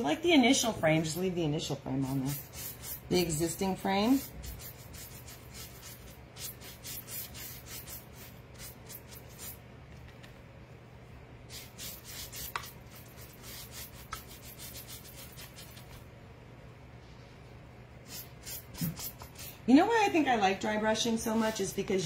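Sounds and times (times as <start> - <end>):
paintbrush bristle strokes: 2.0 - 3.3, 4.1 - 9.6, 11.5 - 16.0, 18.0 - 19.5.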